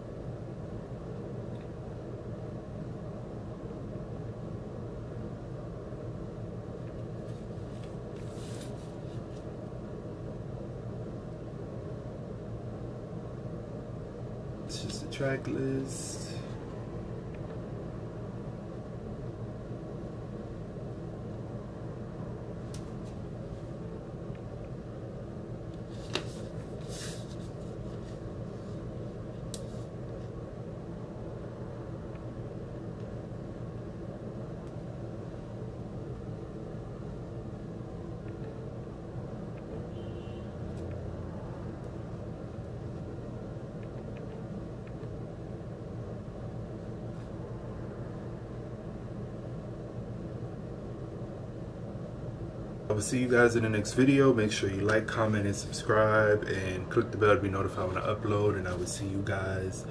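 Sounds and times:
low background hum: 0.0 - 59.9
cardboard sheet rustling: 7.2 - 9.5, 25.9 - 28.8.

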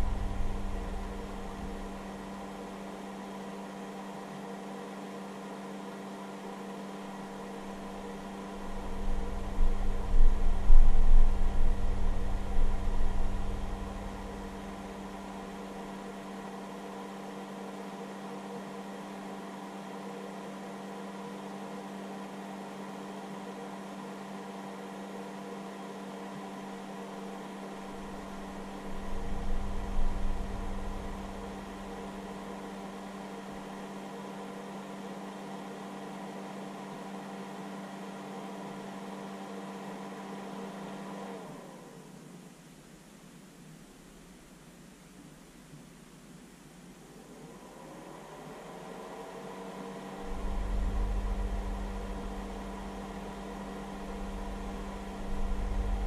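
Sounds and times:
low rumble: 0.0 - 2.0, 50.3 - 53.0
cooling fan humming: 0.0 - 56.0.

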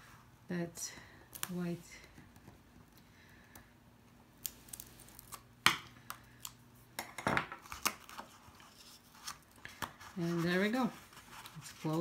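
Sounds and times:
paper rustling: 7.7 - 12.0.

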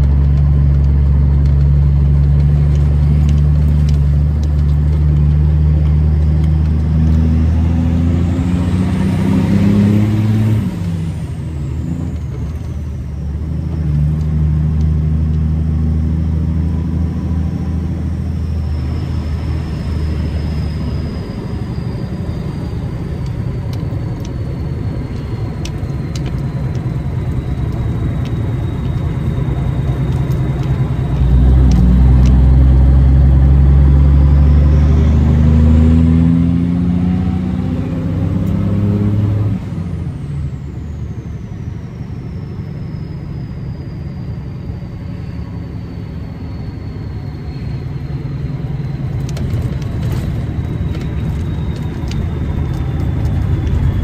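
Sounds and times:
truck diesel engine: 0.0 - 54.0
turbo whistle: 41.8 - 54.0.

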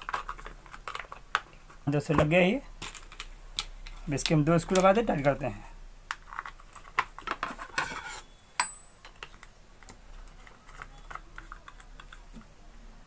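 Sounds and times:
plastic cover and screws clicking: 0.0 - 5.4, 6.1 - 7.9.

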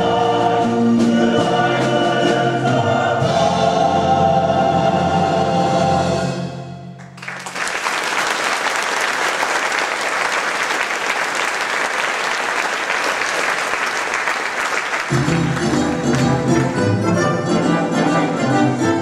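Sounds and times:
choir singing held chord: 0.0 - 6.6
orchestral music: 0.0 - 7.1, 15.1 - 19.0
audience applauding: 7.0 - 17.0.

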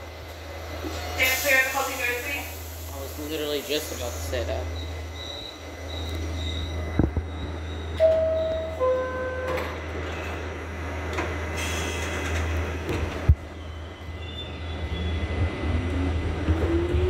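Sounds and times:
subway car low hum: 0.0 - 17.0
two-tone door chime: 8.0 - 9.6.

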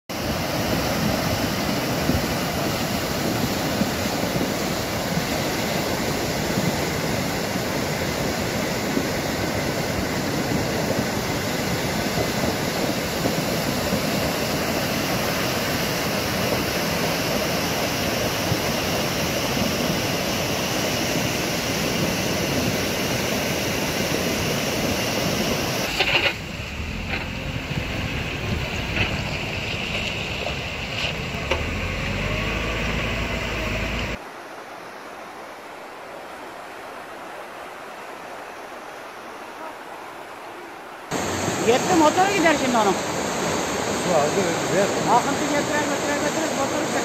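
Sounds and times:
flood water rushing: 0.1 - 47.0.

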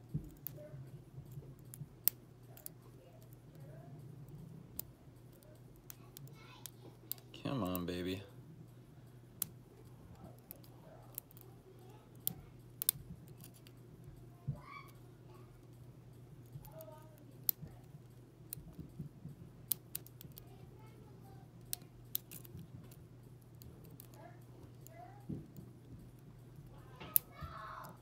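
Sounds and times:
faint steady hum: 0.0 - 28.0
lock pick metallic clicks: 21.7 - 22.6.

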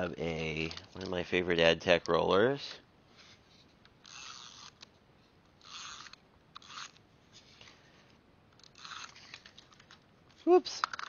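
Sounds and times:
tape runner rasping strokes: 5.6 - 7.7, 8.6 - 9.7.

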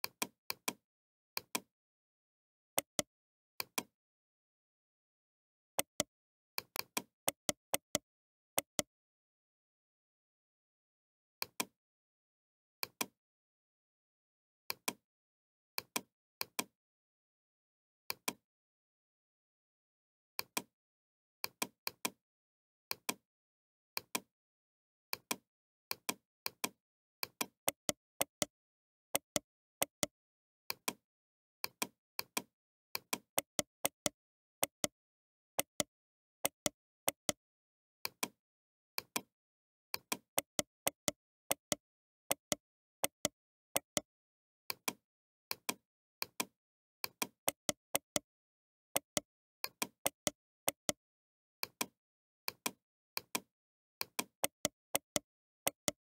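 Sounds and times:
computer mouse clicking: 25.1 - 28.5, 29.2 - 30.1, 31.6 - 35.0, 35.6 - 37.4, 38.0 - 38.4, 40.0 - 44.1, 44.7 - 48.3, 49.0 - 51.0, 51.6 - 56.0.

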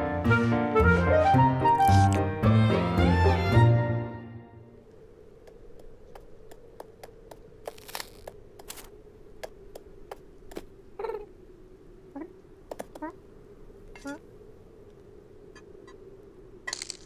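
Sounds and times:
faint hum: 4.3 - 17.0
soft pawstep ticks: 4.9 - 7.5.

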